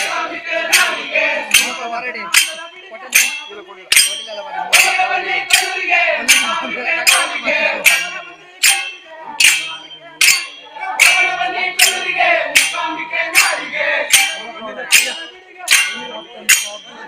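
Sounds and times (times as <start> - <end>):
group singing devotional song: 0.0 - 2.3, 4.3 - 16.2
ringing percussion strikes: 0.0 - 17.0.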